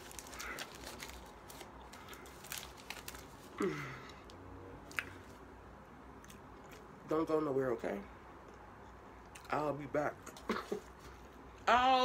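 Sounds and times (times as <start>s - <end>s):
aluminium foil crinkling: 0.0s - 3.6s.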